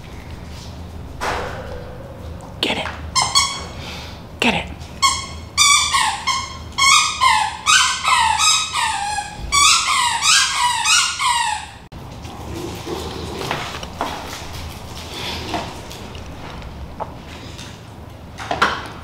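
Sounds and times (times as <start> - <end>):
squeaky dog toy squeaking: 3.2 - 3.8, 5.0 - 11.9.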